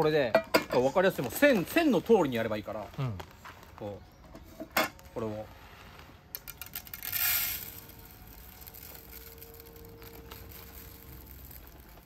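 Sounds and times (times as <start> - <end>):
plastic bag rustling: 5.0 - 12.0
rice grains hitting metal tin: 6.4 - 12.0.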